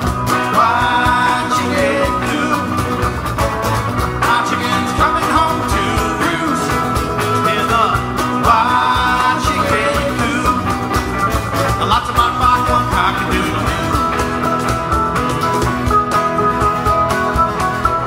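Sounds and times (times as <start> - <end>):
electric guitars: 0.0 - 18.0
steady drum beat: 0.0 - 18.0
man singing: 0.3 - 3.2, 4.1 - 14.7.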